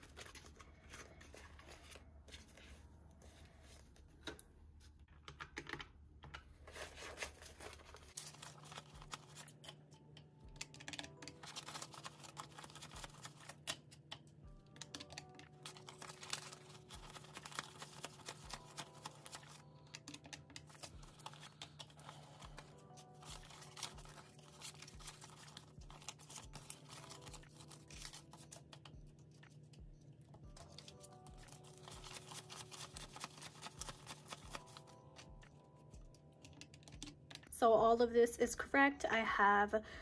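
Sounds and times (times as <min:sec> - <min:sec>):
quiet background music with beat: 0:00.0 - 0:40.0
banknotes being counted by hand: 0:07.3 - 0:09.8, 0:10.6 - 0:29.7, 0:30.6 - 0:35.4.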